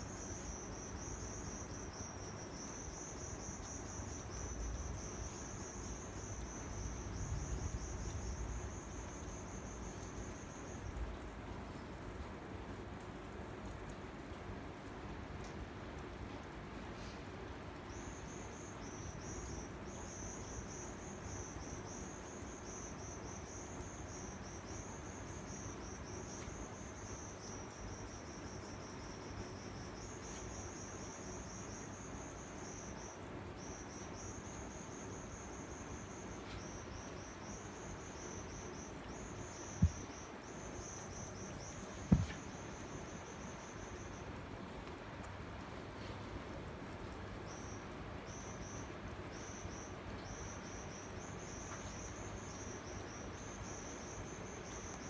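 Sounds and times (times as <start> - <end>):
low background hiss: 0.0 - 55.0
insect trilling: 32.7 - 44.1
sharp knocks: 42.0 - 42.4.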